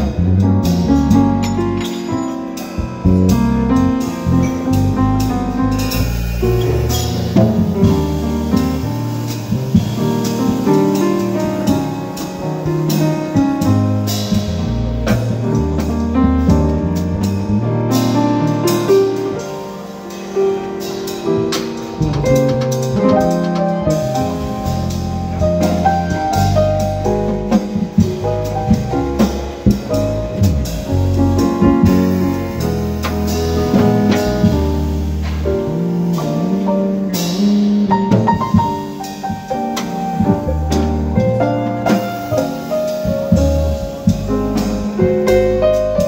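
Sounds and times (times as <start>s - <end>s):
acoustic piano playing: 0.0s - 46.0s
electric bass notes: 0.0s - 46.0s
light drum strokes: 0.0s - 46.0s.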